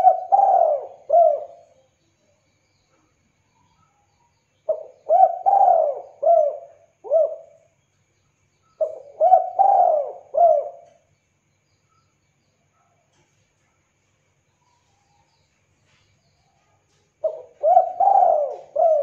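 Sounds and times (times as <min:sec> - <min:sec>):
dove cooing: 0:00.0 - 0:01.8, 0:04.7 - 0:07.6, 0:08.8 - 0:11.0, 0:17.2 - 0:19.0.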